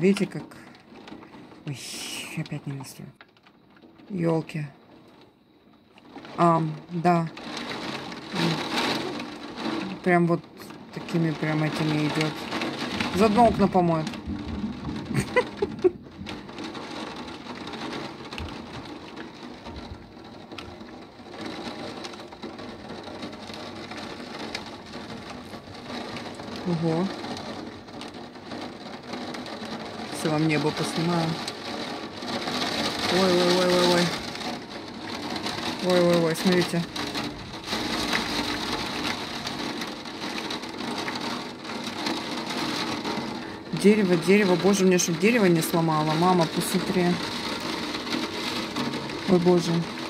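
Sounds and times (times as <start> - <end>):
heavy rain pouring: 0.0 - 50.0
gusting wind: 11.8 - 43.8.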